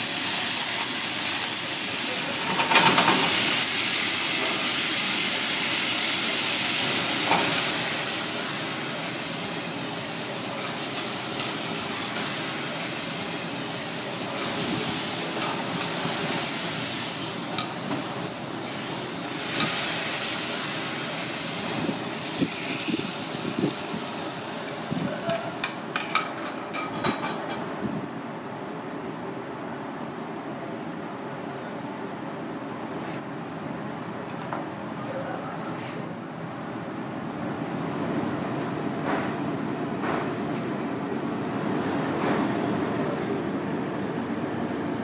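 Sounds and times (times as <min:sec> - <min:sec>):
sauce sizzling in a wok: 0:00.0 - 0:25.7
kitchen hum: 0:00.0 - 0:28.1
utensils and dishes clinking: 0:02.2 - 0:03.6, 0:25.1 - 0:27.7.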